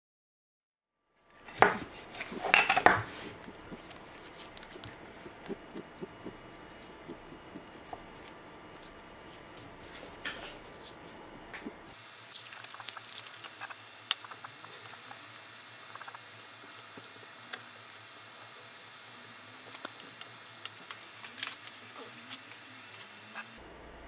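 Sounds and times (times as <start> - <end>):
tape peeling crinkles: 7.7 - 15.2, 19.7 - 23.6.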